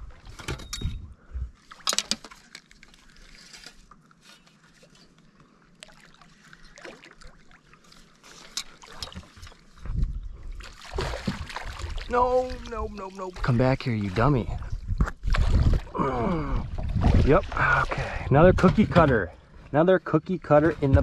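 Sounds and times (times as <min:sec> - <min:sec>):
fish splashing in water: 0:05.8 - 0:09.2, 0:10.6 - 0:13.4.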